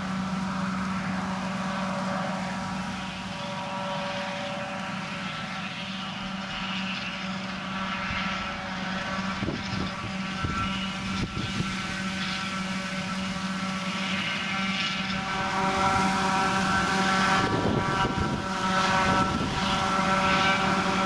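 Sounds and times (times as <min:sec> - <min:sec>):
forage harvester engine drone: 0:00.0 - 0:21.0
rush of crop through harvester: 0:00.0 - 0:21.0
tractor running: 0:00.0 - 0:21.0.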